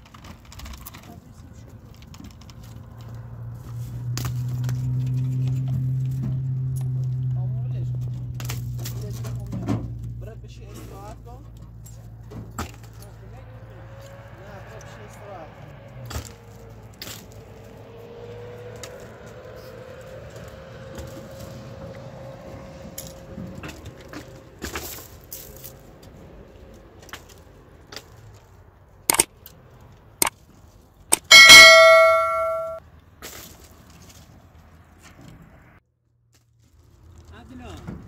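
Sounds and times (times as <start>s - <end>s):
ringing metallic clang: 31.2s - 32.8s
sharp knocks: 31.2s - 32.8s.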